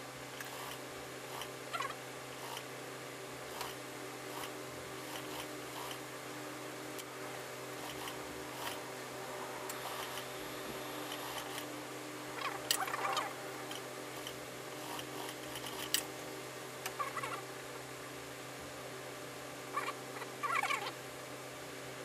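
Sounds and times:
sewing machine hum: 0.4 - 2.7, 3.5 - 6.0, 7.7 - 8.9, 9.7 - 11.7, 14.1 - 16.0.

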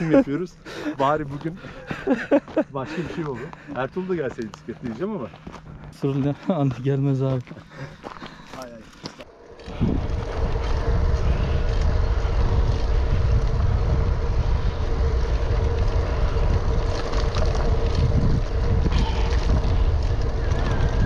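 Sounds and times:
faint steady hum: 0.0 - 21.0
wind buffeting microphone: 9.3 - 21.0.

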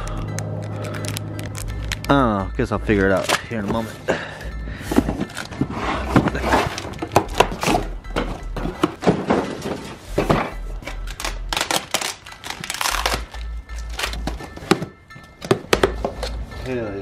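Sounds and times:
background music with pulsing beat: 0.0 - 17.0
box knocking on concrete: 6.1 - 9.6, 14.2 - 16.2
utility knife slitting tape: 11.1 - 14.2.

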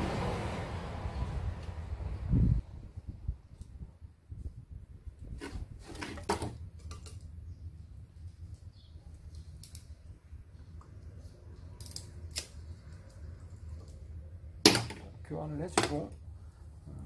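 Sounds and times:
metal parts clicking and scraping: 11.6 - 12.6.

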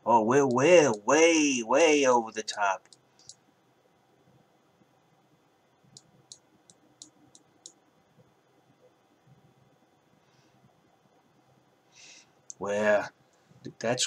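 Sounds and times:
computer mouse clicks: 2.5 - 3.4, 6.0 - 7.8.

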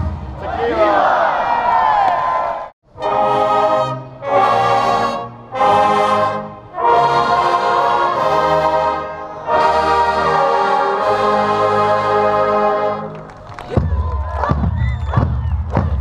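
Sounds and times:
brass band playing held chords: 2.9 - 13.2.

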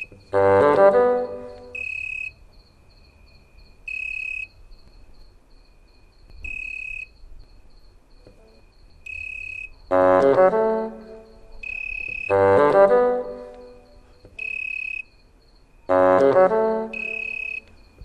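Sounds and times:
cricket high trill: 0.0 - 18.0
fast pulsing cricket chirp: 0.0 - 18.0
brass-like music note: 0.4 - 1.8, 9.9 - 14.0, 15.9 - 17.6.

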